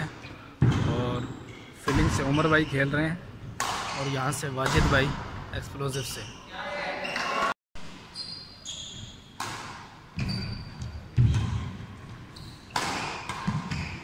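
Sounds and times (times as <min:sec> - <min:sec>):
racket hitting shuttlecock: 0:03.6 - 0:04.0, 0:09.4 - 0:10.4, 0:12.7 - 0:14.0
short high squeaks: 0:08.1 - 0:09.3, 0:10.2 - 0:10.9.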